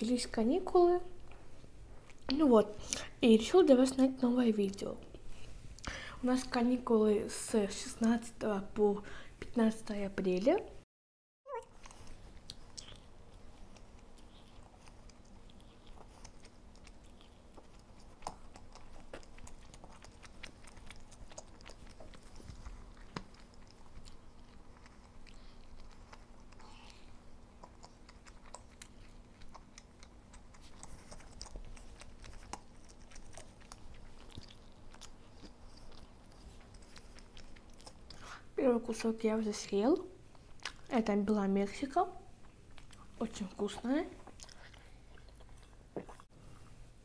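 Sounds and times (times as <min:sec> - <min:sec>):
person chewing pizza: 0:11.6 - 0:39.1, 0:40.2 - 0:40.9, 0:42.3 - 0:46.7.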